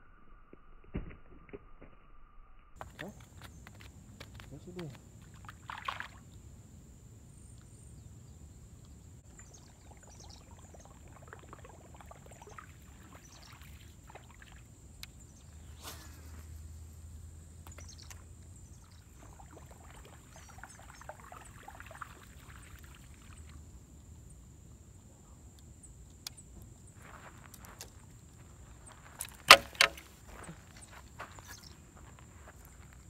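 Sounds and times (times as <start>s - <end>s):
faint chirps: 7.3s - 27.3s.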